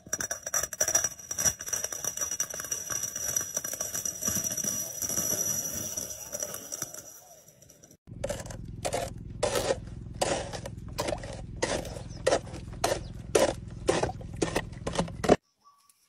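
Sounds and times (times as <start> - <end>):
plastic cup scraping and crushing: 8.1 - 15.4.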